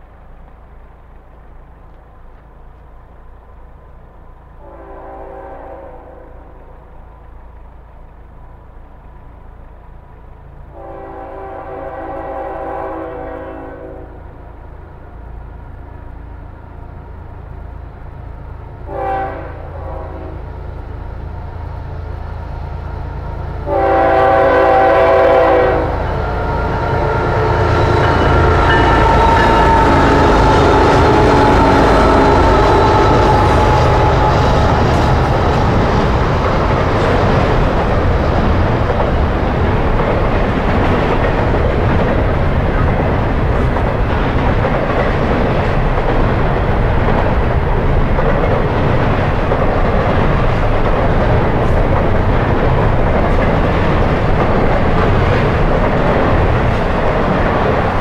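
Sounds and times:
low rumble of train: 0:00.0 - 0:58.0
locomotive air horn blasts: 0:04.6 - 0:06.4, 0:10.8 - 0:14.2, 0:18.9 - 0:20.5, 0:23.6 - 0:27.7, 0:28.4 - 0:35.2.

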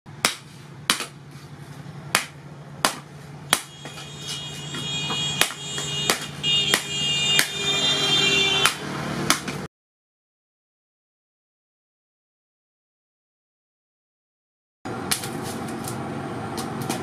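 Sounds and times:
hammer striking hot steel: 0:02.1 - 0:07.6.

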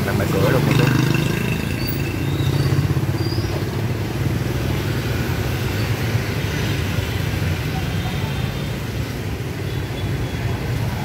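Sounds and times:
motorbike engine rumbling: 0:00.0 - 0:05.7
car engines running: 0:00.0 - 0:07.7.

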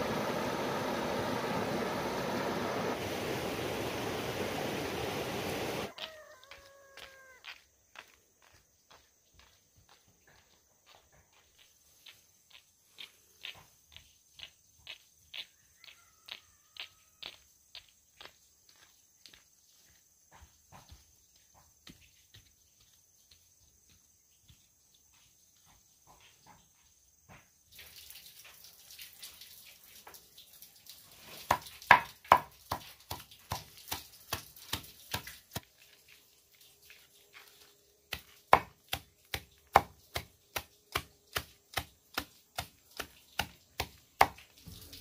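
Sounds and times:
knife chopping leafy greens: 0:31.5 - 0:35.8, 0:38.1 - 0:44.5.

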